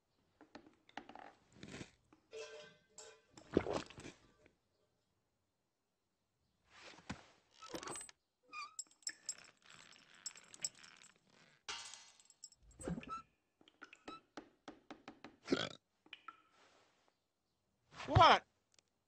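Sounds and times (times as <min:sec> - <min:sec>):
kitchenware clinking: 0:02.3 - 0:03.6, 0:11.7 - 0:13.1.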